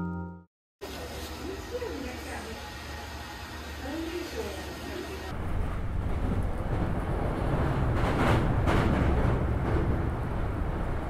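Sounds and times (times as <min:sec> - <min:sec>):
train carriage rumble: 0:03.6 - 0:11.0.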